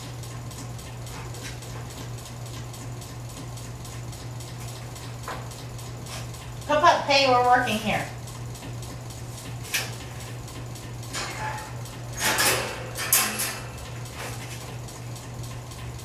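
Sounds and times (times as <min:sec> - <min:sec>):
steady low hum: 0:00.0 - 0:16.0
wire crate clinking and rattling: 0:11.1 - 0:14.3.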